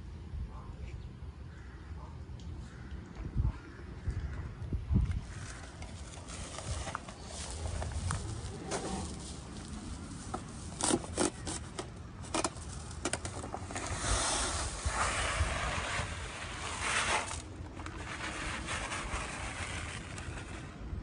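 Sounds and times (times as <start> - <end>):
plastic sack rustling: 5.5 - 20.5.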